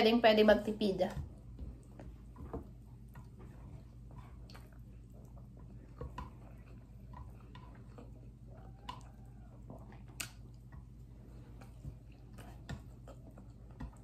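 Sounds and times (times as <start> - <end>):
steady low hum: 0.0 - 14.0
chewing rice: 1.2 - 14.0
mouth clicks and smacks: 9.9 - 10.8.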